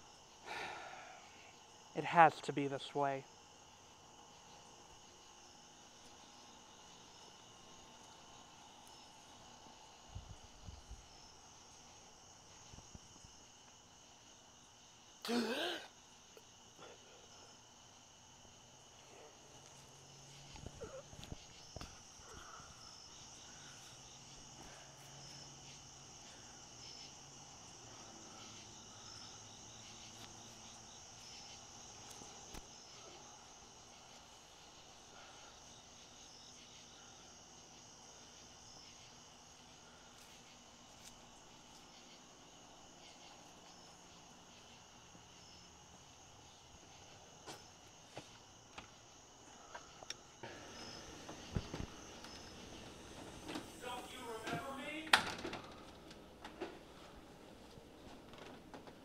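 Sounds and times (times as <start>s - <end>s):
crickets chirping: 0.0s - 59.0s
rustles and soft knocks: 50.4s - 53.8s.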